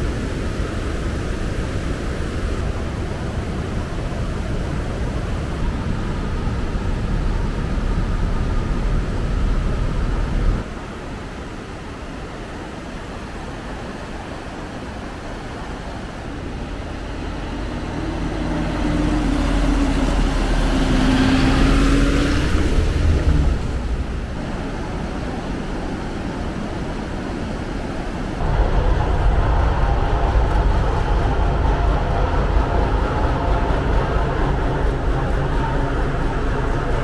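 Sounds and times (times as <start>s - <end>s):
steady low rumble: 0.0s - 10.7s, 15.1s - 27.2s, 28.0s - 37.0s
fast river rushing: 0.0s - 37.0s
vehicle engine passing: 16.6s - 24.3s, 28.4s - 37.0s.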